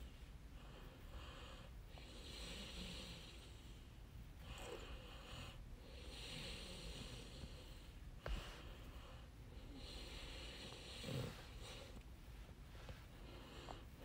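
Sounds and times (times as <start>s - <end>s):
breathing close to microphone: 0.0s - 14.0s.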